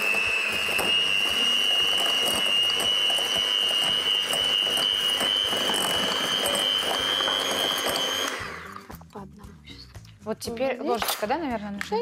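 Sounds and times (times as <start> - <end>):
electric mixer motor whine: 0.0 - 9.0.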